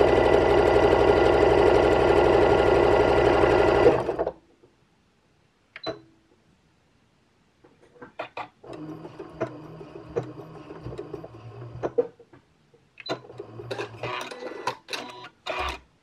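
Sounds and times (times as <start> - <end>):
sewing machine stitching: 0.0 - 4.4, 8.3 - 12.0, 13.1 - 15.8.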